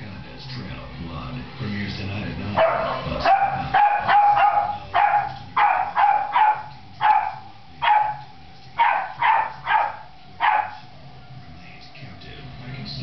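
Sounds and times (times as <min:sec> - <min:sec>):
puppy yapping: 0:02.6 - 0:10.9.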